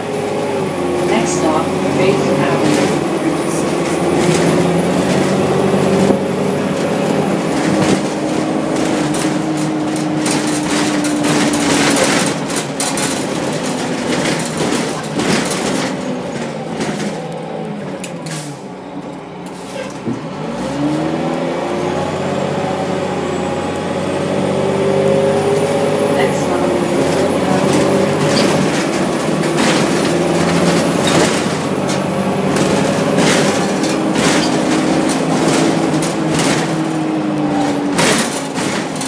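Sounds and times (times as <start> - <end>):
rattles and clatter: 0.0 - 18.6, 25.1 - 39.0
bus drivetrain: 0.0 - 39.0.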